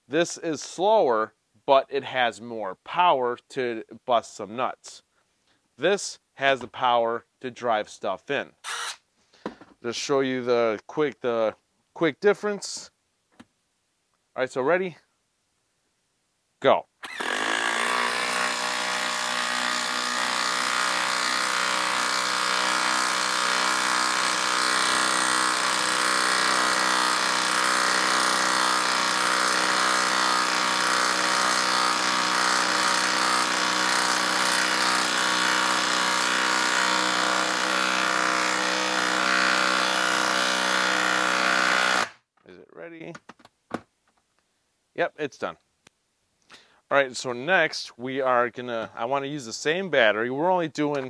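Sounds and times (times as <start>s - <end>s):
impact wrench hammering: 17.1s - 42.2s.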